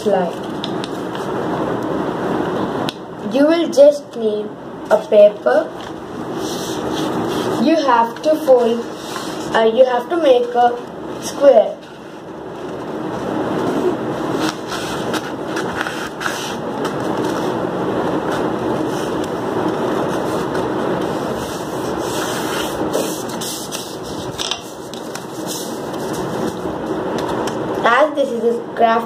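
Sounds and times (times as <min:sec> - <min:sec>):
paper rustling and rubbing: 0:05.8 - 0:10.8, 0:11.8 - 0:27.4
paper crinkles and taps: 0:23.7 - 0:26.6.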